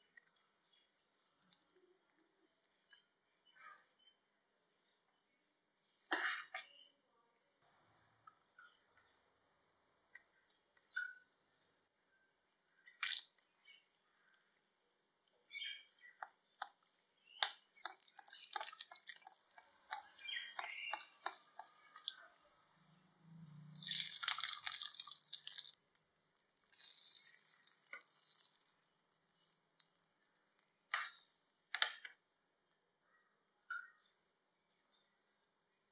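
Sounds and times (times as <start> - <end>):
nuts sizzling in hot oil: 17.8 - 22.7, 23.7 - 26.0, 26.6 - 28.7.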